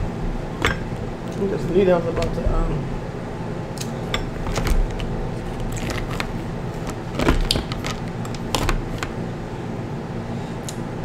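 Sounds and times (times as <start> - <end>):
crab shells cracking: 3.8 - 9.2.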